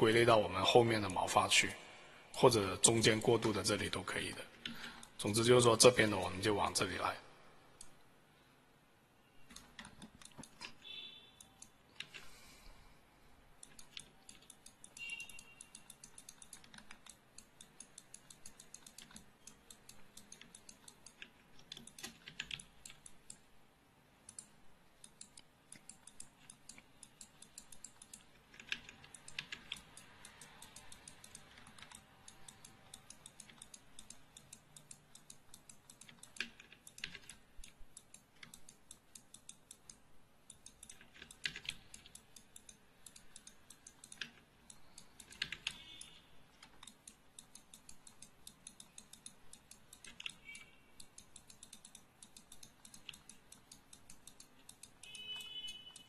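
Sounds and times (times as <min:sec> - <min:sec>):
keyboard and mouse clicking: 0:00.0 - 0:01.6, 0:02.4 - 0:07.0, 0:09.4 - 0:12.4, 0:13.5 - 0:23.5, 0:24.1 - 0:56.0.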